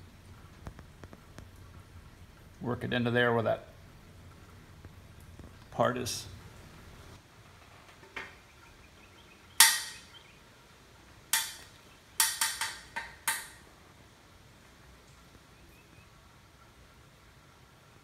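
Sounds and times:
sharp clicks and snaps: 11.3 - 13.6.

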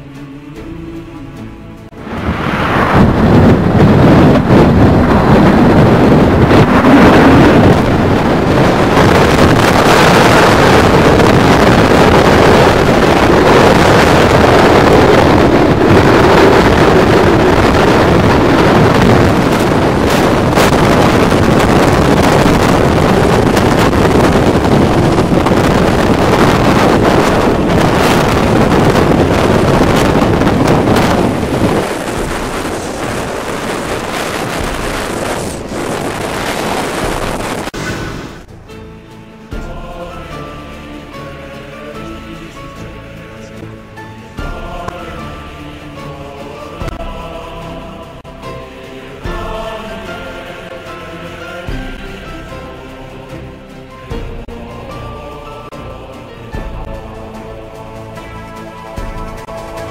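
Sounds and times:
strong wind on microphone: 1.8 - 59.9.

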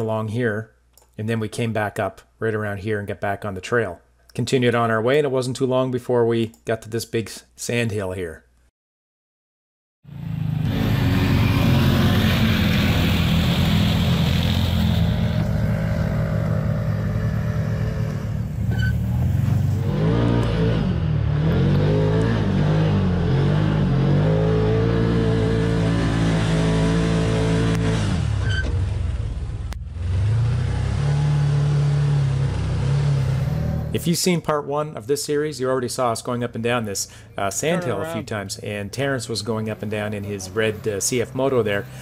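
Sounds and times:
vehicle engine revving under load: 10.1 - 34.0.

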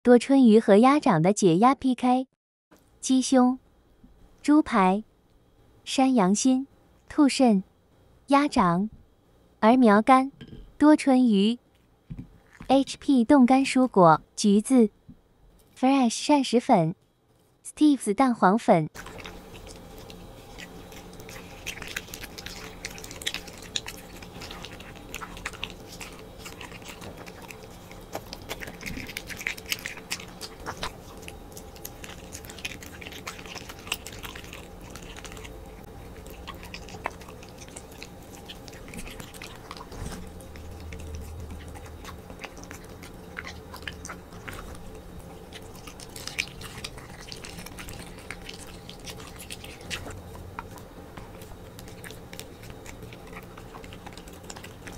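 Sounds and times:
dog chewing raw meat: 19.0 - 54.9
teeth clicking: 19.0 - 54.9.

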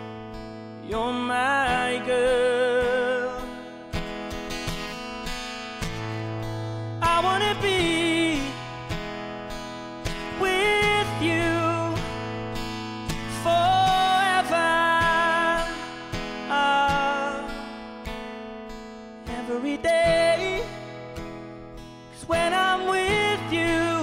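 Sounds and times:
acoustic guitar strumming: 0.0 - 24.0
man singing: 0.8 - 3.7, 7.0 - 8.7, 10.1 - 17.9, 19.2 - 21.0, 22.1 - 24.0.

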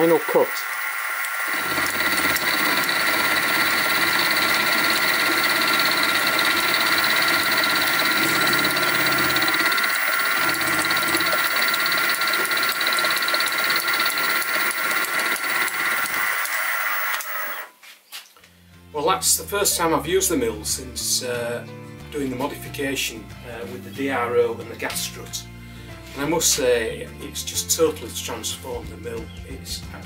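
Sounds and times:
metal cutting noise: 0.0 - 17.7
milling machine whine: 0.0 - 17.7.

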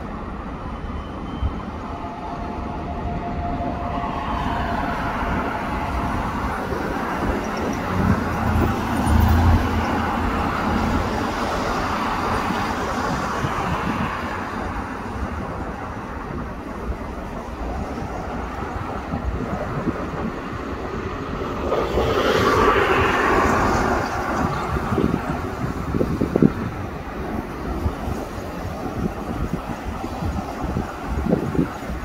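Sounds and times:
electric train pulling out: 0.0 - 13.4.

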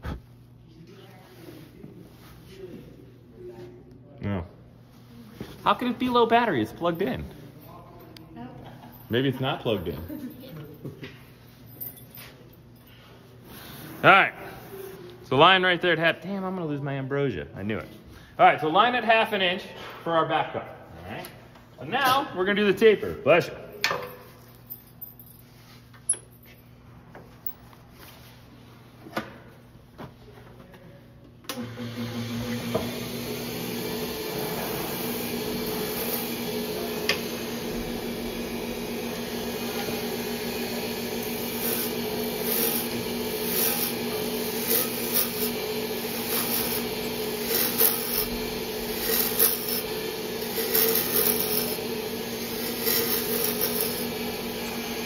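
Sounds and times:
lathe motor hum: 31.5 - 55.0.

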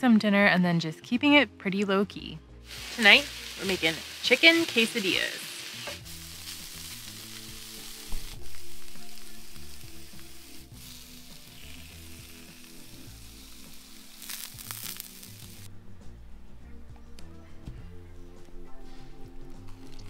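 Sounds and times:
background music: 0.0 - 20.0
food sizzling on a griddle: 2.6 - 15.7.

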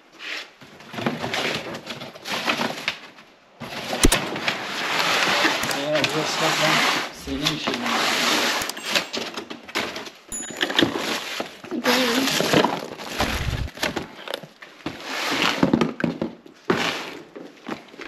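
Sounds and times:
household items clinking and knocking: 5.4 - 6.4, 8.4 - 14.3
cardboard box rummaging: 11.8 - 14.2.

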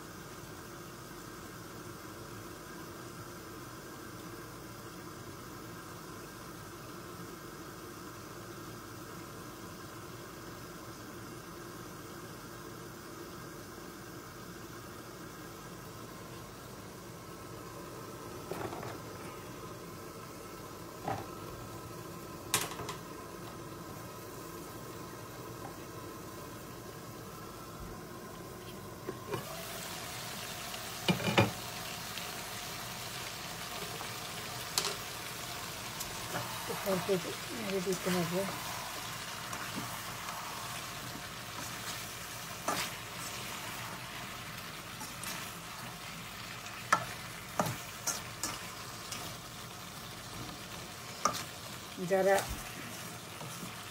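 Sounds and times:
covered pan hissing: 0.0 - 53.9
spatula scraping a pan: 41.5 - 44.0, 45.0 - 45.6, 46.9 - 49.4.

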